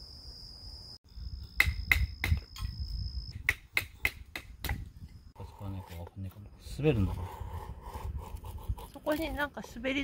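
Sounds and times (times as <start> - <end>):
high insect drone: 0.0 - 3.5.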